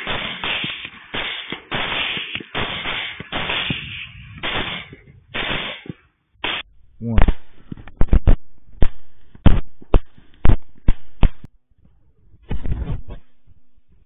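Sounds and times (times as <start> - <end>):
rifle shots: 0.0 - 7.5.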